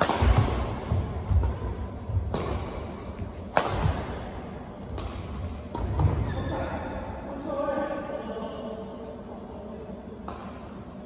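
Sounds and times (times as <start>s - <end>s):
racket hitting shuttlecock: 0.0s - 6.4s, 10.2s - 10.9s.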